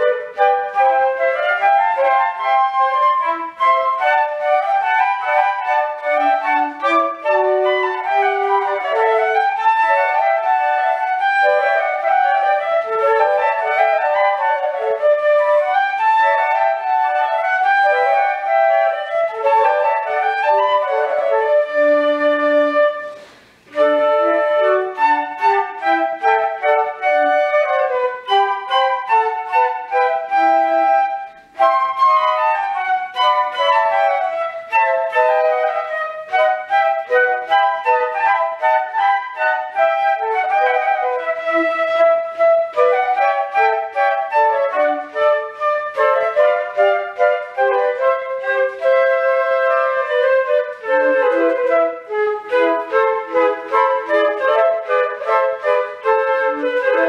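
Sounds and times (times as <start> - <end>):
flute trio playing: 0.0 - 57.0.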